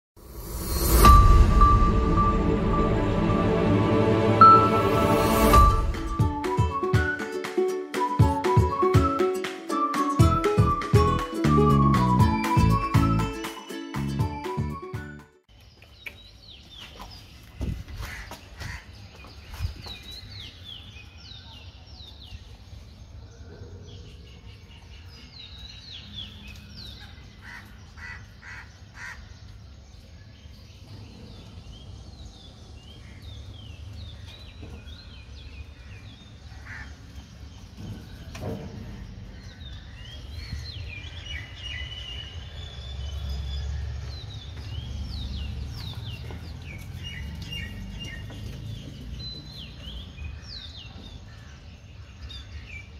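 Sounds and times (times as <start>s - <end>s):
low rumble: 0.2s - 6.4s
birds chirping: 7.9s - 52.9s.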